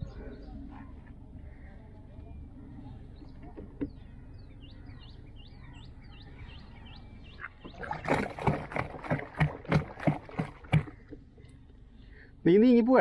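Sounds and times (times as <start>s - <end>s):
water splashing against boat: 7.4s - 11.2s
quiet wash of water: 7.5s - 11.2s.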